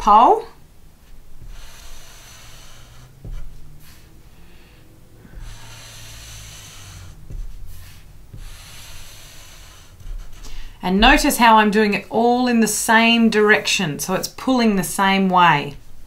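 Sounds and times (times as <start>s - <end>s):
soft low thumps: 0.0s - 13.2s
marker scratching on paper: 1.0s - 11.5s.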